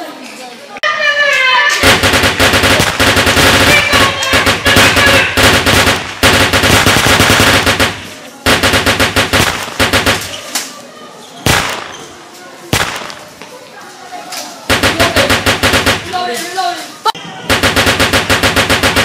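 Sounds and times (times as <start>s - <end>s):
automatic gunfire bursts: 1.8s - 10.5s, 11.5s - 12.1s, 12.7s - 13.3s, 14.7s - 16.3s, 17.5s - 19.0s.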